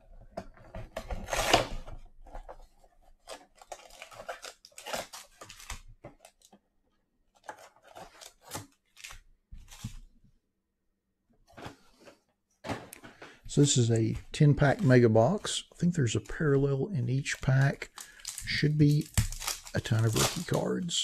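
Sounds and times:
cardboard ripping: 0:01.0 - 0:01.8, 0:03.3 - 0:05.8, 0:17.6 - 0:20.7
cardboard rustling: 0:07.3 - 0:10.1.

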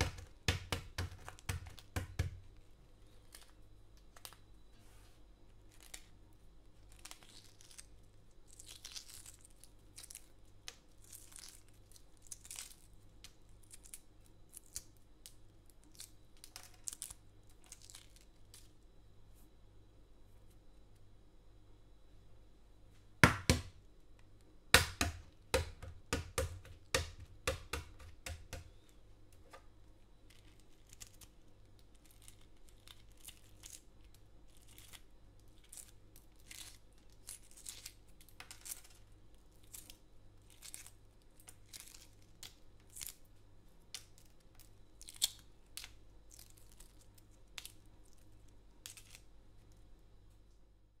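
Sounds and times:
eggshell peeling crackles: 0:00.0 - 0:04.4, 0:05.6 - 0:18.9, 0:24.2 - 0:50.5.

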